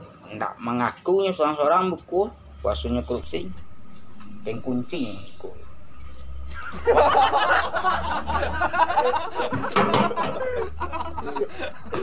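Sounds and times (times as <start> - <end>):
man snickering and chuckling: 6.5 - 12.0.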